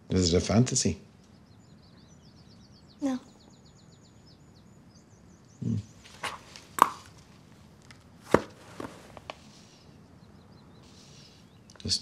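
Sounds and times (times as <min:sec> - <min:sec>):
paper pages taps and rustles: 0:07.9 - 0:09.4.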